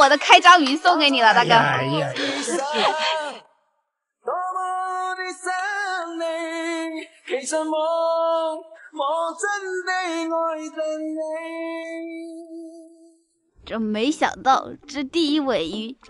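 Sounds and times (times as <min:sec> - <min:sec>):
woman singing: 0:00.0 - 0:03.4.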